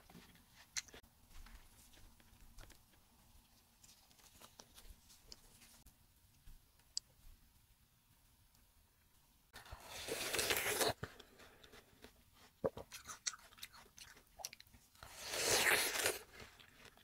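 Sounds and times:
chewing: 0:09.7 - 0:17.0
biting into watermelon: 0:09.8 - 0:11.1, 0:12.6 - 0:17.0.

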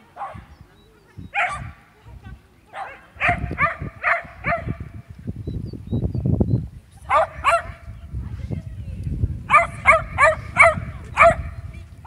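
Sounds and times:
dog barking: 0:00.2 - 0:00.5, 0:01.3 - 0:01.8, 0:02.7 - 0:04.9, 0:07.1 - 0:07.8, 0:09.5 - 0:11.6.

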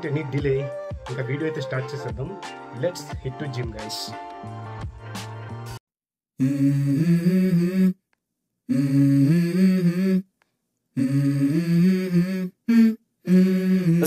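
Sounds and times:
person humming a melody: 0:06.4 - 0:08.0, 0:08.7 - 0:10.3, 0:11.0 - 0:14.0.

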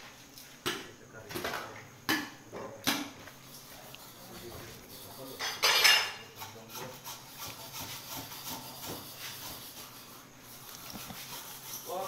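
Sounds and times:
knife cutting and scraping meat: 0:03.4 - 0:12.0.

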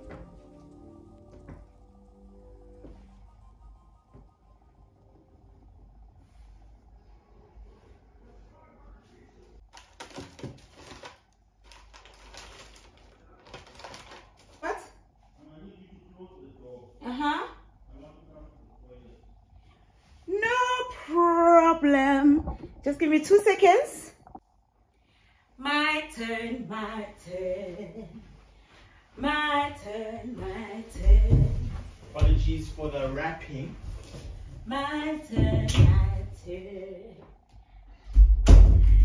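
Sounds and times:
tissue paper and plastic rustling: 0:09.6 - 0:14.9
woman singing unaccompanied: 0:25.6 - 0:28.2, 0:29.2 - 0:31.7, 0:34.6 - 0:37.2.

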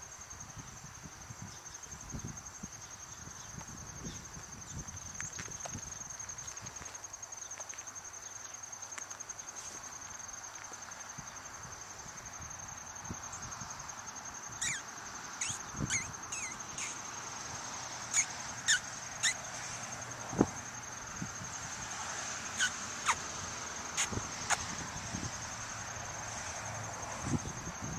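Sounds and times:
high insect trill: 0:00.0 - 0:27.9
bird chirps sweeping downward: 0:14.6 - 0:17.0.

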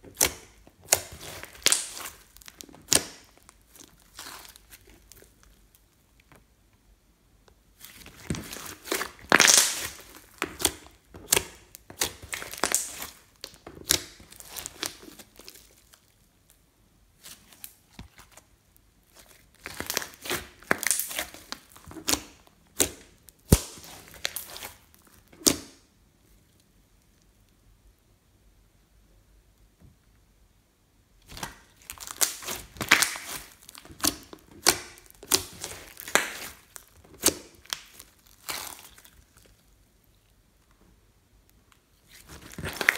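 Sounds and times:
slime crackling and snapping: 0:00.0 - 0:05.6, 0:07.8 - 0:16.2, 0:19.1 - 0:25.8, 0:31.2 - 0:39.7, 0:42.0 - 0:42.9.

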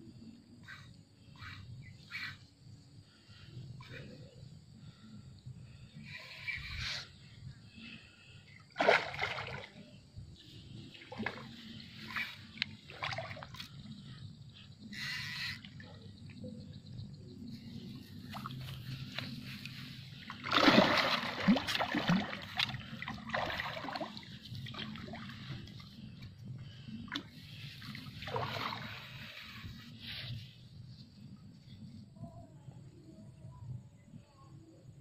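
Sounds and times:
fish splashing in water: 0:08.7 - 0:09.8, 0:20.2 - 0:25.6.

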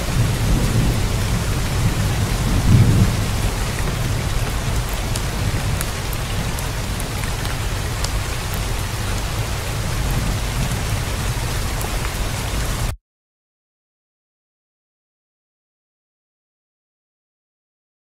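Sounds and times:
low thunder rumble: 0:00.0 - 0:12.9
raindrops ticking: 0:00.0 - 0:12.9
heavy rain: 0:00.0 - 0:13.0.

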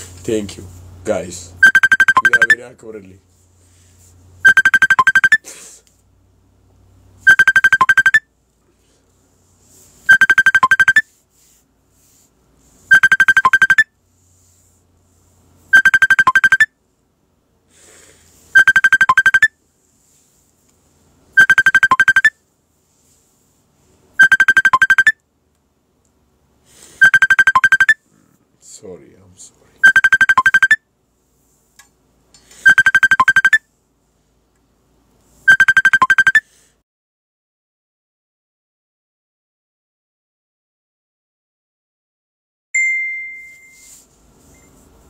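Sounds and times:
trilling electronic phone ring: 0:01.6 - 0:02.6, 0:04.4 - 0:05.4, 0:07.3 - 0:08.2, 0:10.1 - 0:11.1, 0:12.9 - 0:13.8, 0:15.8 - 0:16.7, 0:18.6 - 0:19.5, 0:21.4 - 0:22.4, 0:24.2 - 0:25.1, 0:27.0 - 0:28.0, 0:29.8 - 0:30.8, 0:32.7 - 0:33.6, 0:35.5 - 0:36.4, 0:42.8 - 0:44.0.

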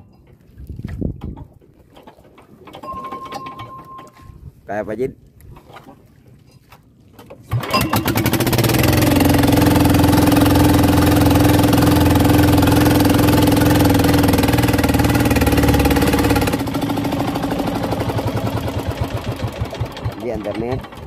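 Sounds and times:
boat engine running: 0:07.5 - 0:21.0.

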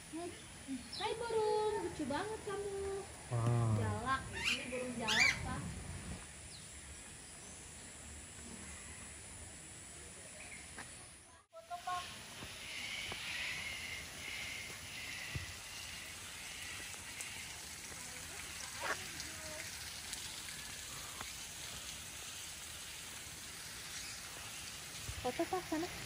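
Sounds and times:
outdoor hiss: 0:00.0 - 0:26.0
faint bird chirping: 0:04.2 - 0:09.3.

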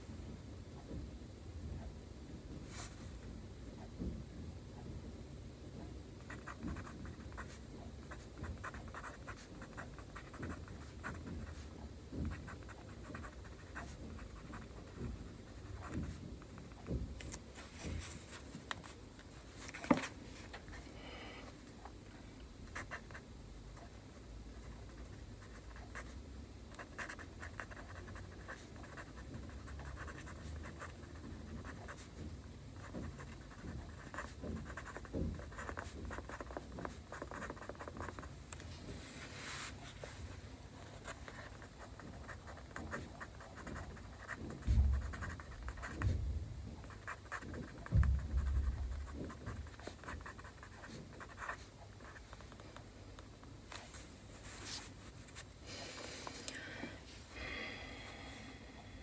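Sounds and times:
pen scratching on paper: 0:06.3 - 0:17.0, 0:24.6 - 0:26.2, 0:26.8 - 0:32.2, 0:32.8 - 0:38.3, 0:40.8 - 0:46.1, 0:46.8 - 0:52.2
low thumps: 0:44.5 - 0:46.8, 0:47.8 - 0:49.7.

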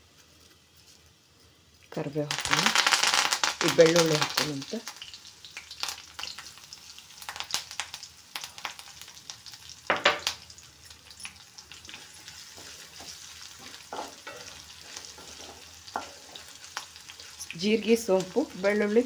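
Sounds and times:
spices sizzling in hot oil: 0:00.0 - 0:19.0
stirring in pan: 0:10.5 - 0:19.0.

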